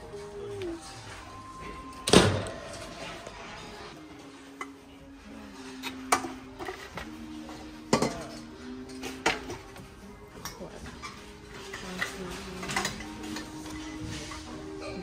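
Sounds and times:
metal pans clanking: 0:07.8 - 0:09.7.

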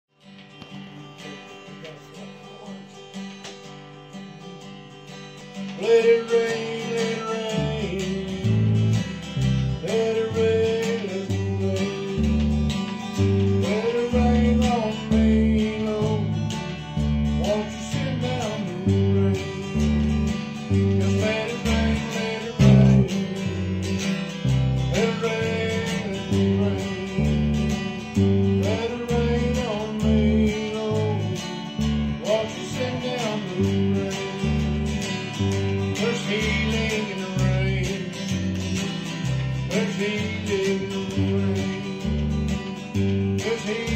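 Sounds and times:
acoustic guitar strumming: 0:00.1 - 0:43.9
electric bass guitar: 0:00.4 - 0:43.9.

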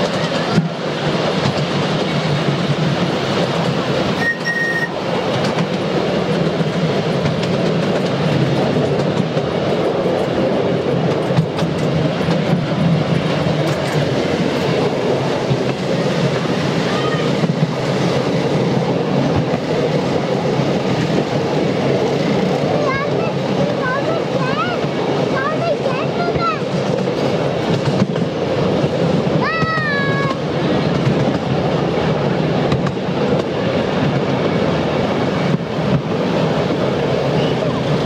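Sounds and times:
miniature train wheels clacking: 0:00.0 - 0:31.6, 0:32.6 - 0:34.8
brief high tone: 0:04.2 - 0:05.0.

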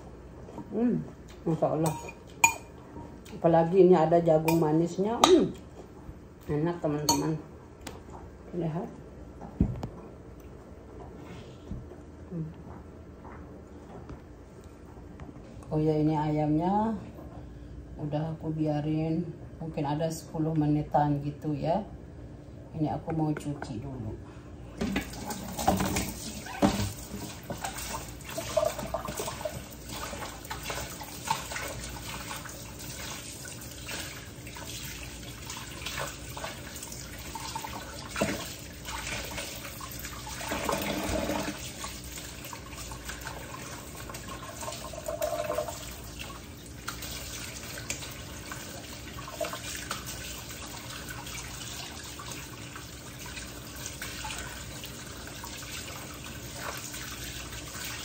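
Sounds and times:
rinsing meat by hand: 0:24.9 - 0:58.0.

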